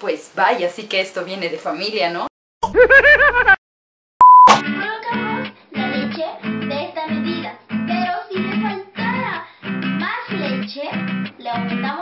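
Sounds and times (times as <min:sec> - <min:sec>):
high test tone beep: 0:04.2 - 0:04.6.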